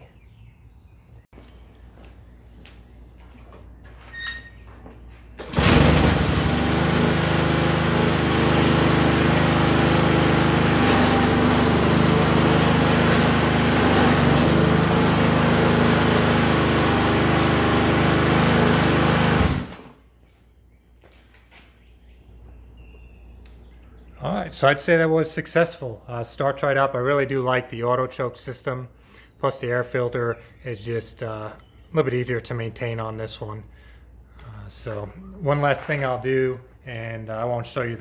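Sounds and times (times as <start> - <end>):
lawn mower engine running: 5.4 - 20.1.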